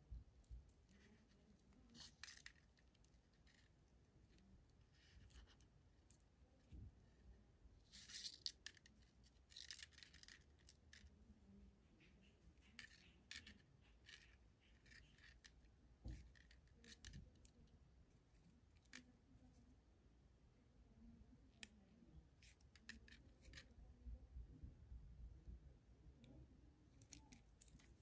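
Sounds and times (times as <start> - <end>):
fishing line rustling through fingers: 0.2 - 19.8, 27.0 - 28.0.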